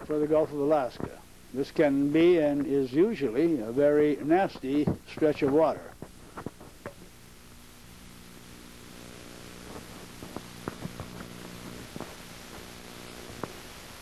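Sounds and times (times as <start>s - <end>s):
low electrical hum: 0.0s - 14.0s.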